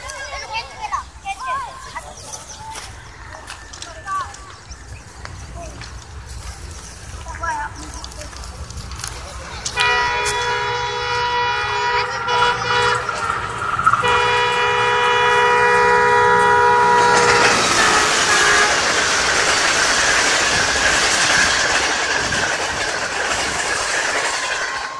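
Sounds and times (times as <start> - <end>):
train wheels rattling on rails: 0.0 - 24.9
train horn: 9.7 - 19.3.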